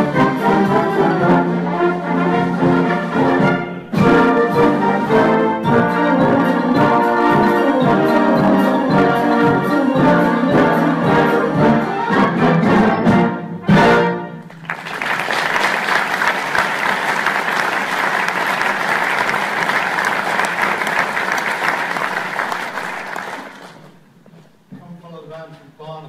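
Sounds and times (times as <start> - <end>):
concert band playing: 0.0 - 24.1
audience applauding: 14.5 - 24.0.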